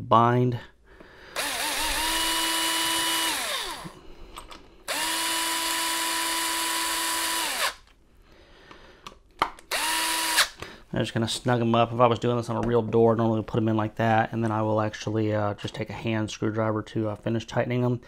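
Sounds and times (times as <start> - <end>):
cordless drill whining: 1.3 - 7.9, 9.7 - 10.6.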